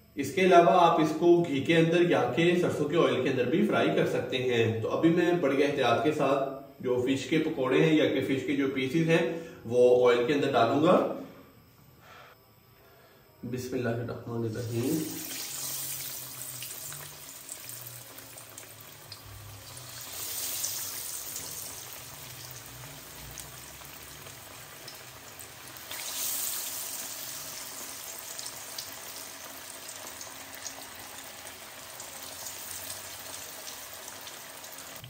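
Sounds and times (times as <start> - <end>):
fish deep-frying in oil: 14.6 - 35.0.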